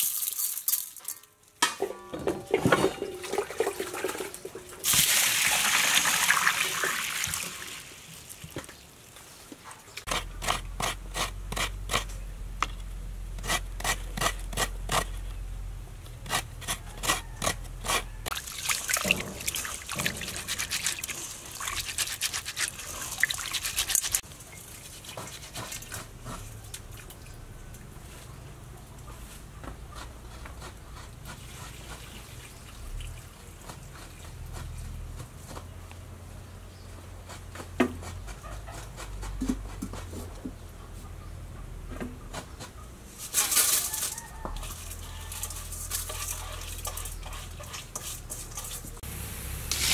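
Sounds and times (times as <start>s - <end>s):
water pouring into metal bowl: 2.9s - 7.9s, 18.3s - 24.2s
hands rubbing wet seeds: 18.3s - 27.0s.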